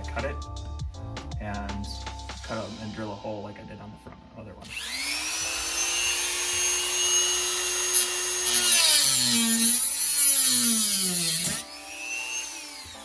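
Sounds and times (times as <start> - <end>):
rotary tool cutting plastic: 4.7 - 13.0.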